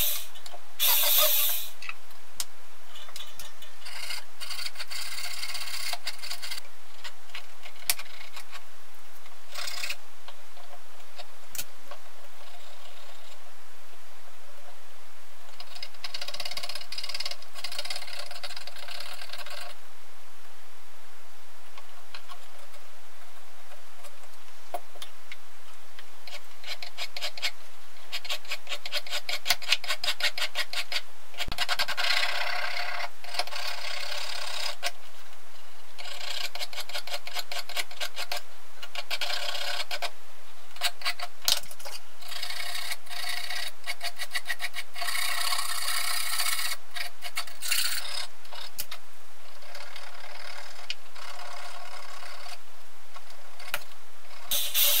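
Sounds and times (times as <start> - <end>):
file rasping on brass: 54.5 - 55.0.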